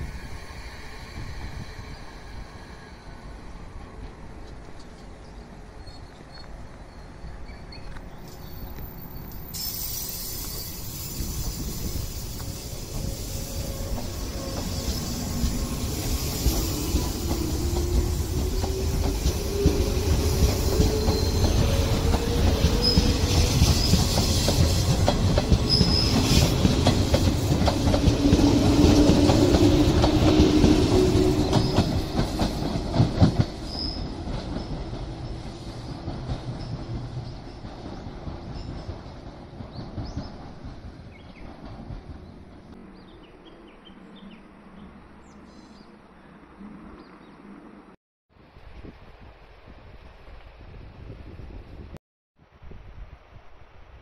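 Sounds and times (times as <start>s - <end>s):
wheels squealing: 5.8s - 24.9s, 25.6s - 32.7s
train wheels clacking over rail joints: 16.3s - 35.2s.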